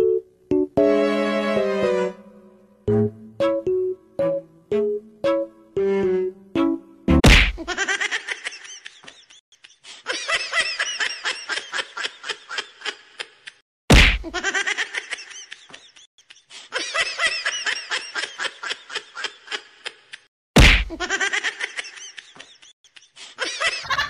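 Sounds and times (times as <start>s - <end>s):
sharp whack: 7.2s - 7.7s, 13.9s - 14.4s, 20.6s - 21.0s
high-pitched laughter: 7.6s - 13.6s, 14.3s - 20.3s, 20.9s - 24.0s.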